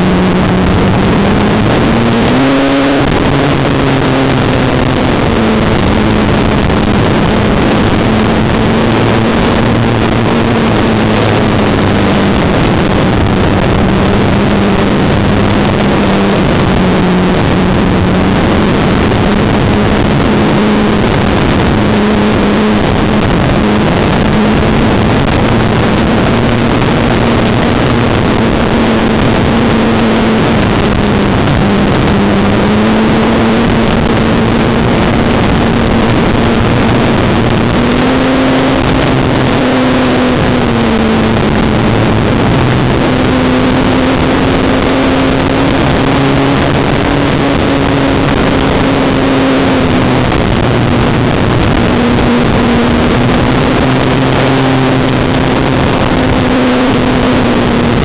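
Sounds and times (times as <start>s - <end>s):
model motor and propeller hum: 0.0s - 58.0s
rush of air: 0.0s - 58.0s.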